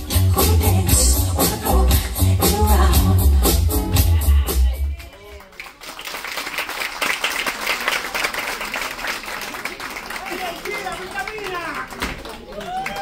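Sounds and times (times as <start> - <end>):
loud music with heavy bass beat: 0.0 - 5.0
audience applauding: 4.9 - 13.0.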